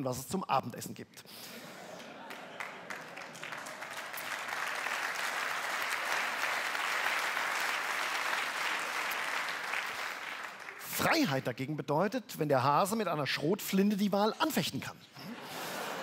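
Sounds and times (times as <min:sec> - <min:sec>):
large audience applauding: 0:01.9 - 0:11.1.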